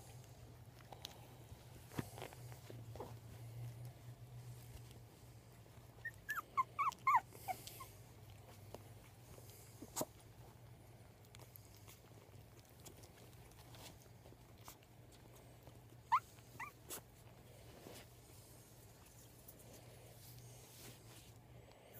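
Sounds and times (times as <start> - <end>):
puppies squeaking and whimpering: 5.7 - 8.3, 15.9 - 17.1.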